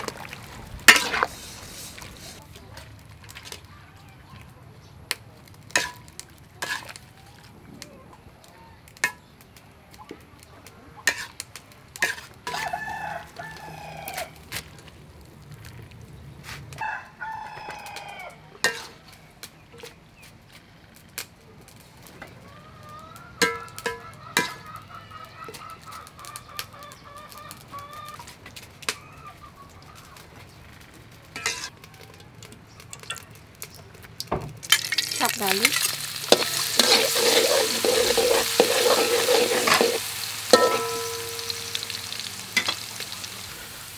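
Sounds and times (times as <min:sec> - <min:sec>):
rooster crowing: 0:12.5 - 0:14.4, 0:16.8 - 0:18.6.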